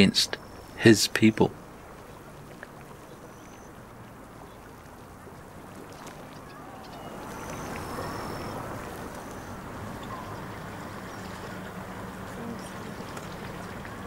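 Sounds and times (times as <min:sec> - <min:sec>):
high bird chirps: 0:06.3 - 0:08.7.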